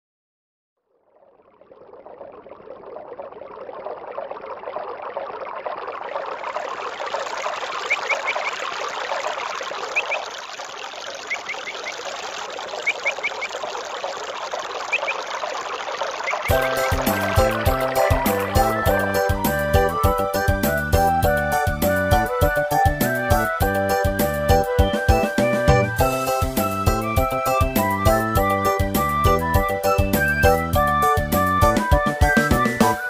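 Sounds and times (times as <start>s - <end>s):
running water: 1.0s - 33.0s
music: 16.5s - 33.0s.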